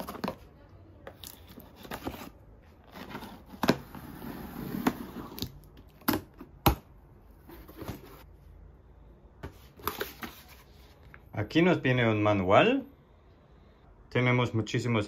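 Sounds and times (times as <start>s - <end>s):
cardboard scraping and rustling: 1.4s - 5.5s, 7.4s - 8.3s.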